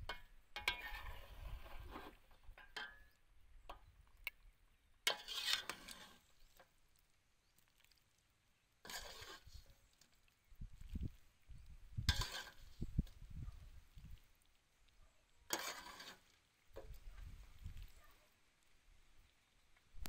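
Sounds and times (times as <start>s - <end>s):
metal ladle scraping a pot: 0.0s - 3.2s, 5.0s - 6.7s, 8.8s - 10.1s, 12.0s - 13.2s, 15.5s - 17.0s
soup sloshing: 5.1s - 14.5s.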